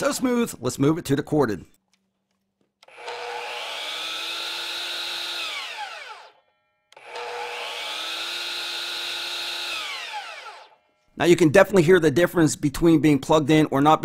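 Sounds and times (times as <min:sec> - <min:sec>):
miter saw motor whining: 0:02.8 - 0:11.0.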